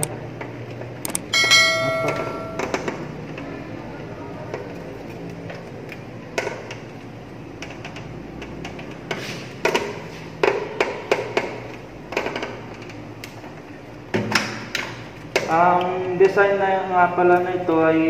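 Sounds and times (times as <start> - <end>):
sharp clicks of relay parts: 0.0 - 3.4, 4.5 - 13.5.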